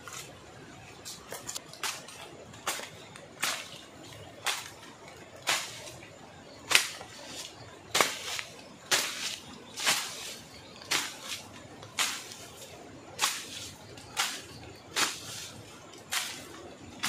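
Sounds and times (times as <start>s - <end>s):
bush knife swishing through grass: 5.4s - 6.0s, 6.7s - 15.5s, 16.1s - 16.5s.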